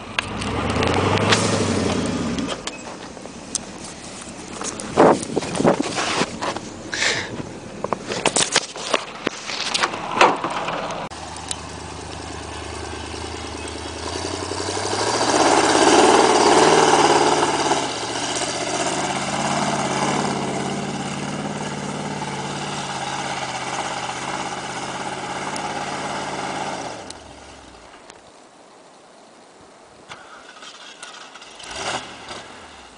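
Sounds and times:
truck engine revving: 0.0s - 2.8s, 9.9s - 27.9s, 30.6s - 32.9s.

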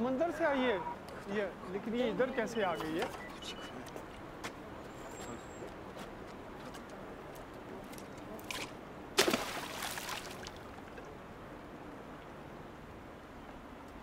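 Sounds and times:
water sloshing: 8.4s - 11.1s
object splashing into water: 8.5s - 10.8s.

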